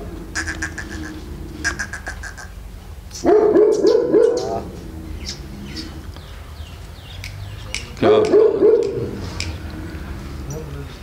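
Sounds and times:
dog barking: 3.2 - 4.7, 8.0 - 9.2.

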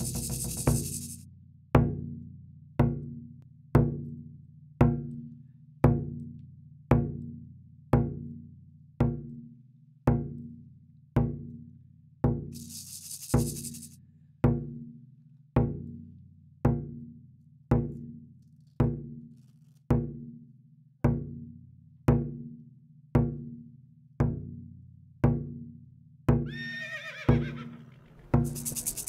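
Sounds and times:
drum beating slowly: 0.0 - 1.2, 27.3 - 29.0
horse whinnying: 26.4 - 28.9.

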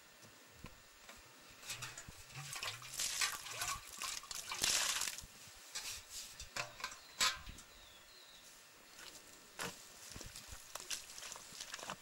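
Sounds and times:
water splashing onto earth: 1.9 - 5.3.

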